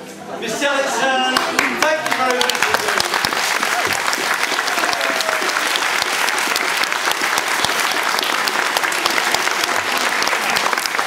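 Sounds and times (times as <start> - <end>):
large audience applauding: 1.3 - 11.0.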